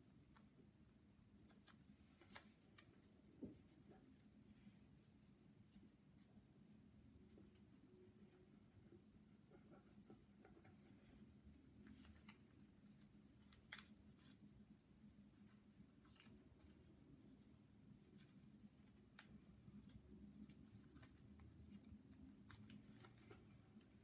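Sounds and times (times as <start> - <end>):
paper being folded and creased: 1.5 - 4.2, 11.8 - 14.5, 15.3 - 24.0.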